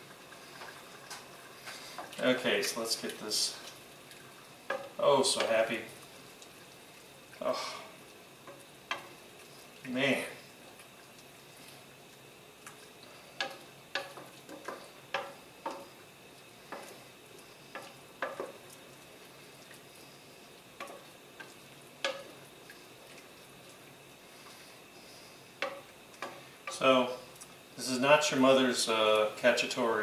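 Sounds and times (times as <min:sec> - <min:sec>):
faint sizzle: 0:00.0 - 0:30.0
wooden spoon knocking against pot: 0:13.4 - 0:15.9, 0:22.0 - 0:22.3, 0:25.6 - 0:26.8.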